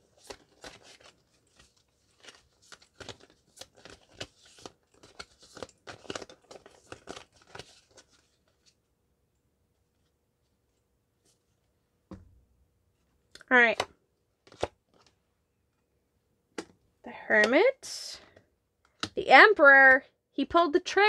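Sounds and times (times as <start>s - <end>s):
cards being shuffled: 0.0s - 8.8s, 13.8s - 15.2s.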